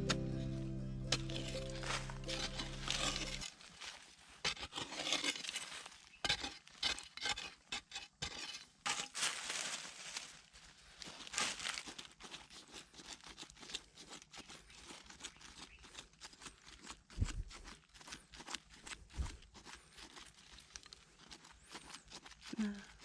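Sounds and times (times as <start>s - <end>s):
dry soil scraping and crumbling: 0.0s - 23.0s
dead leaves crackling: 1.2s - 4.0s, 9.2s - 12.1s.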